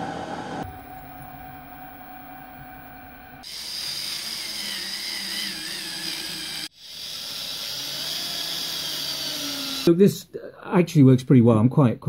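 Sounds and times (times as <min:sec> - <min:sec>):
drill bit whining into metal: 0:03.4 - 0:09.9
milling machine motor running: 0:03.4 - 0:09.9.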